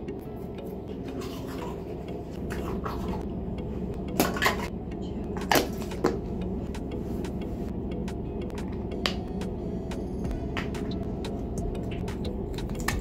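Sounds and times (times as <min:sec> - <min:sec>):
steady low background noise: 0:00.0 - 0:13.0.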